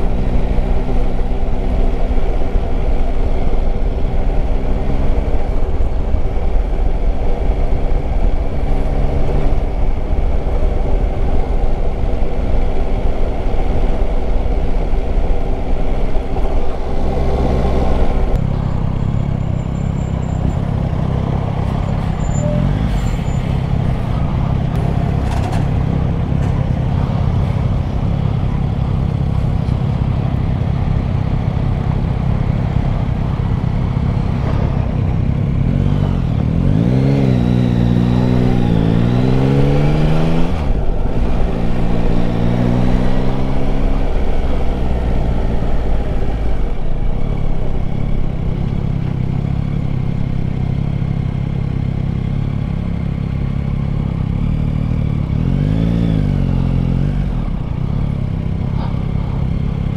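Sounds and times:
steady rushing noise: 0.0s - 19.0s, 22.8s - 50.6s
motorcycle engine revving: 31.3s - 59.9s.

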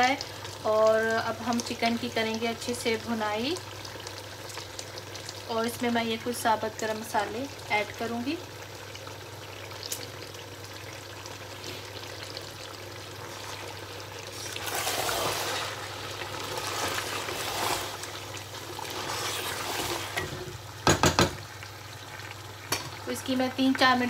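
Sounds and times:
food sizzling in a pot: 0.0s - 24.0s
wooden spoon scraping a pot: 13.2s - 20.5s.

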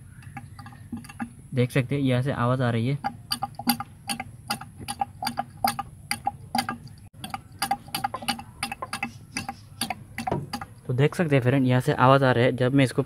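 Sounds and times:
quick regular clicking: 3.0s - 10.8s.

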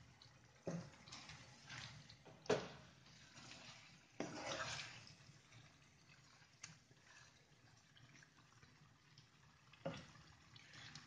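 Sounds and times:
wet scrape and squelch: 3.1s - 5.1s.

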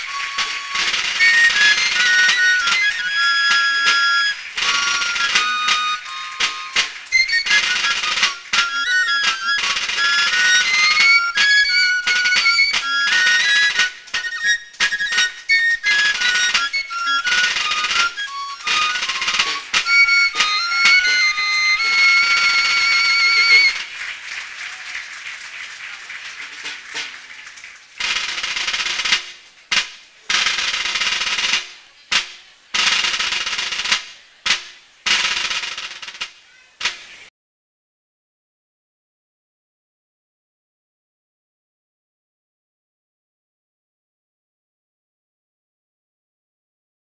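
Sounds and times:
folk dance tune on high instrument: 0.0s - 24.1s
audience applause: 0.0s - 29.1s.

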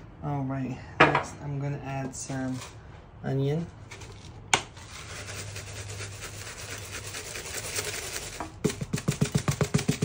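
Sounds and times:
dried onion rattling from shaker: 4.8s - 8.9s.

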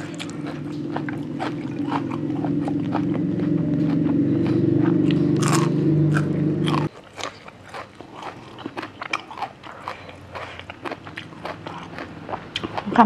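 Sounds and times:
low steady hum: 0.0s - 6.9s
crisp crunching and chewing: 0.0s - 13.0s.

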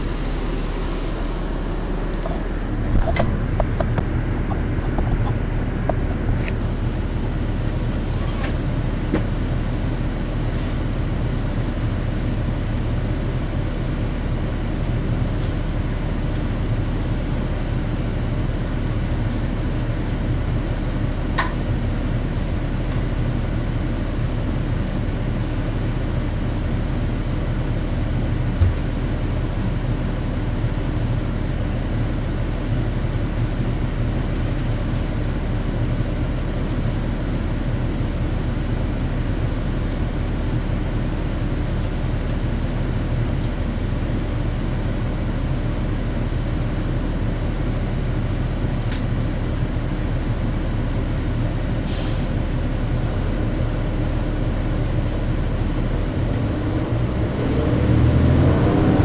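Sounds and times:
bus diesel engine drone: 0.0s - 59.0s.

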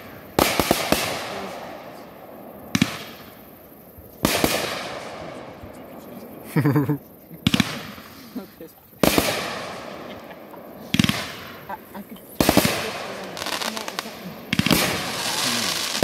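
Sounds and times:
firework shells bursting: 0.0s - 2.1s, 4.2s - 5.8s, 7.4s - 8.4s, 9.0s - 16.0s.

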